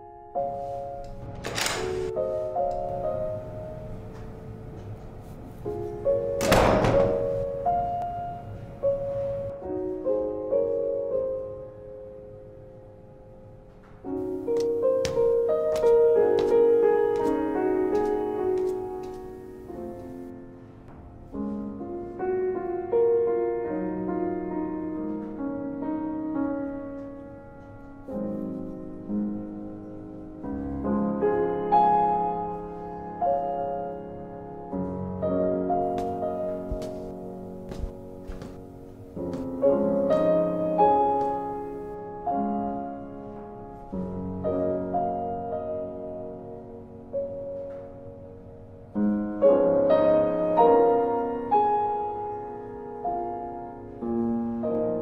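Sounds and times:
keyboard chords ringing: 0.0s - 25.0s
slow piano music: 0.0s - 55.0s.

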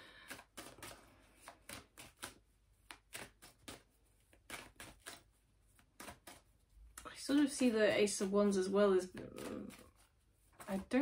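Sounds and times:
cards being shuffled: 0.2s - 6.6s, 9.0s - 11.0s.

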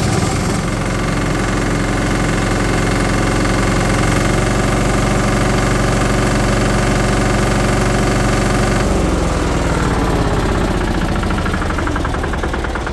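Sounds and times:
plate compactor diesel engine: 0.0s - 12.9s.

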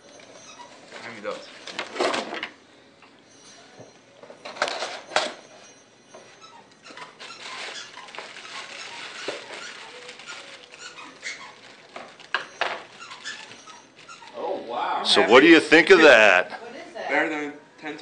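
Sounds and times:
plastic wrap crinkling: 6.8s - 14.5s.

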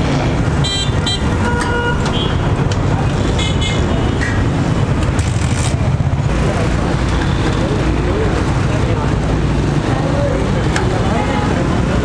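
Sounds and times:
traffic engine rumble: 0.0s - 12.0s
car horn toots: 0.6s - 2.4s.

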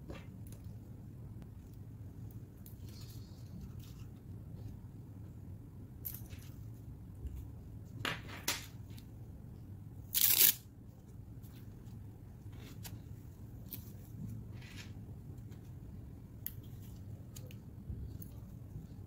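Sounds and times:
hook-and-loop closure ripping: 10.1s - 10.6s
nylon strap scraping: 10.1s - 10.6s.

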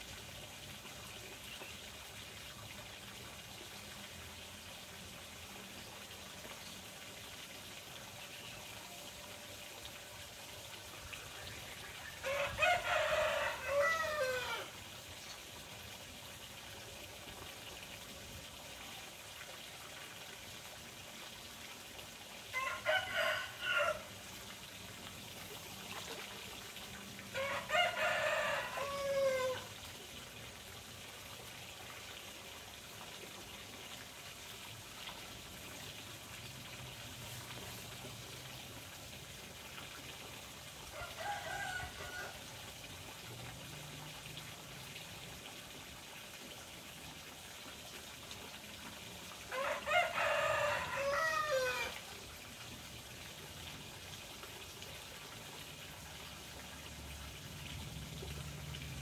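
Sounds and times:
running water: 0.0s - 59.0s
rooster crowing: 12.2s - 14.7s, 22.5s - 24.1s, 27.4s - 29.7s, 40.9s - 42.4s, 49.5s - 52.0s.

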